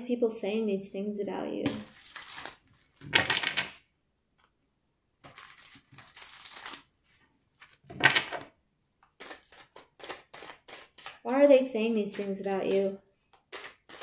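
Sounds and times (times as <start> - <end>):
cards being shuffled: 1.7 - 3.7, 5.2 - 6.9, 9.0 - 11.4, 12.1 - 14.0.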